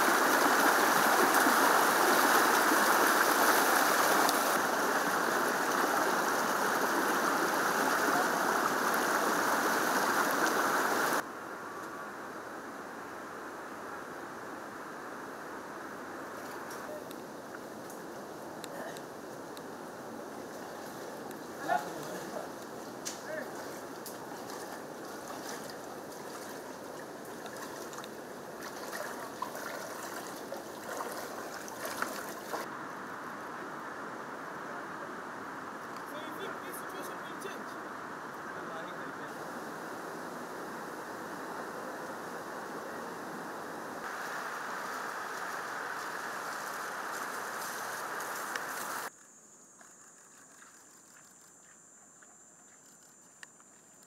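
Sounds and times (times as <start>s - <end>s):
people wading through water: 0.0s - 11.2s, 20.1s - 32.7s
floodwater rushing: 0.0s - 11.3s, 18.0s - 33.2s, 34.9s - 49.1s.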